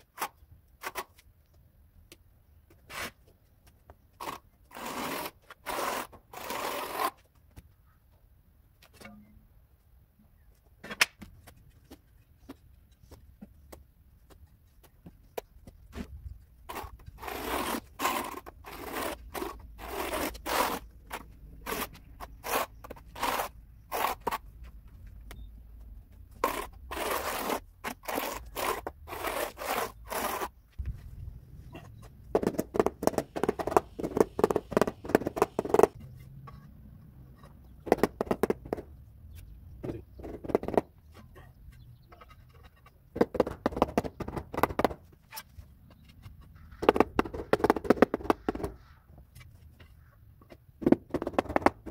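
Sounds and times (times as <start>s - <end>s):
trowel scraping adhesive on concrete: 2.8s - 3.3s, 4.1s - 7.3s, 16.7s - 24.5s, 26.4s - 30.6s, 32.4s - 36.0s.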